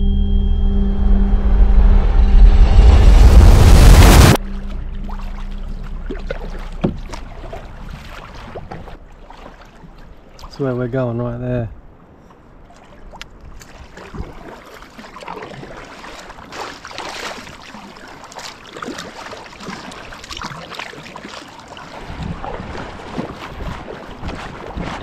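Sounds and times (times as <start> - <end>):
wind rumble on microphone: 0.0 - 9.0, 22.0 - 25.0
kayak paddle splashing water: 4.4 - 10.9, 12.1 - 25.0.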